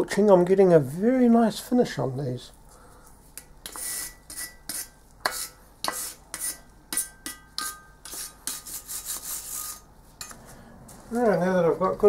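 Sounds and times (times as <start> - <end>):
wire brush scrubbing metal: 3.7 - 9.9.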